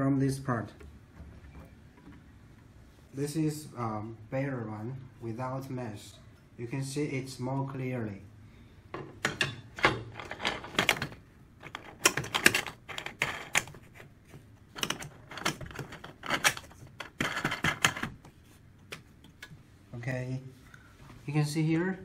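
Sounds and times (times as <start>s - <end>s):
metal frame clicking and knocking: 9.2s - 13.8s, 14.7s - 18.1s.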